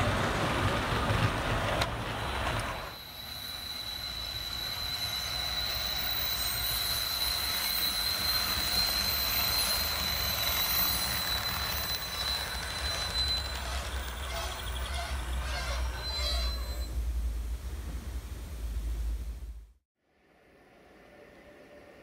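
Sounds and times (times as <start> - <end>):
train running: 0.0 - 19.6.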